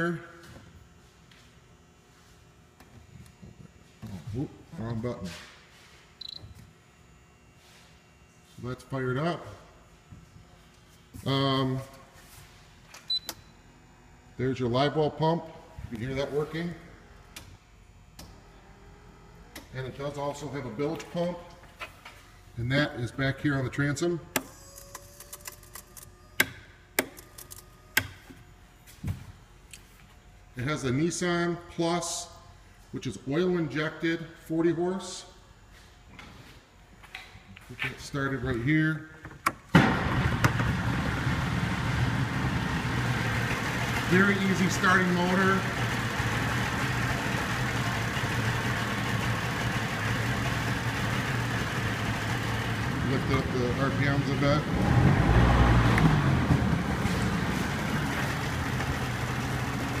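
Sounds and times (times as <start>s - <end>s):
outboard motor idling: 40.2s - 54.7s, 55.9s - 60.0s.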